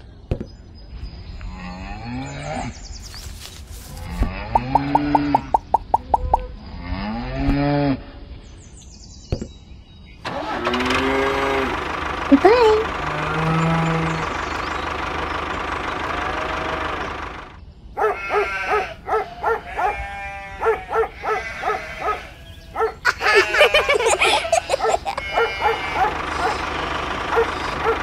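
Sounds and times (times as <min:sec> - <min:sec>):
animals barking and bleating: 0:10.3 - 0:28.0.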